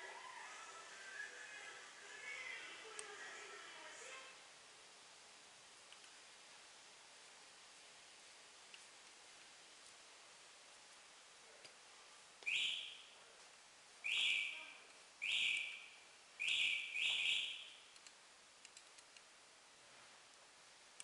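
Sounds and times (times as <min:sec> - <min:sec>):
faint small clicks: 0:05.9 - 0:06.2, 0:08.7 - 0:09.2, 0:17.9 - 0:19.3.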